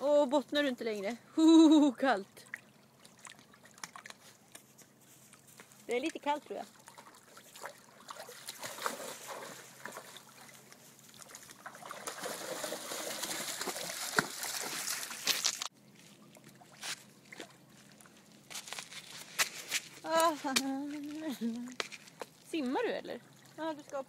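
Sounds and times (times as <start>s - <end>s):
water lapping: 2.2s - 24.0s
dog splashing through water: 2.5s - 4.5s, 6.0s - 15.7s.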